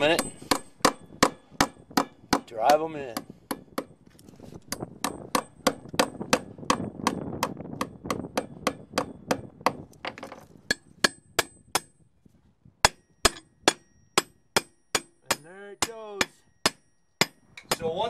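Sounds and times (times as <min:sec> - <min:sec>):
hammer striking steel bolts: 0:12.9 - 0:17.9.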